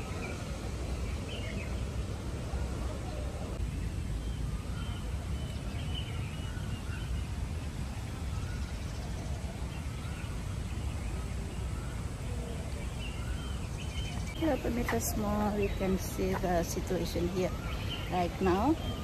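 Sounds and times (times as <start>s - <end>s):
faint bird calls: 8.2s - 19.0s.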